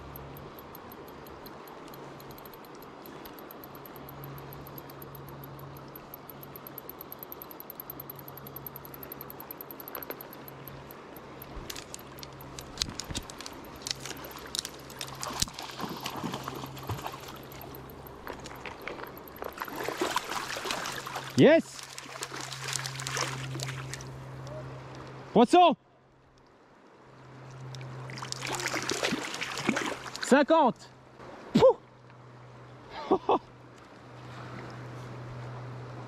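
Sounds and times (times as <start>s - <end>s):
fishing reel ticking: 0.0s - 15.6s, 16.8s - 21.0s
tackle clicks and rattles: 0.0s - 19.8s
faint flowing water: 0.0s - 36.0s.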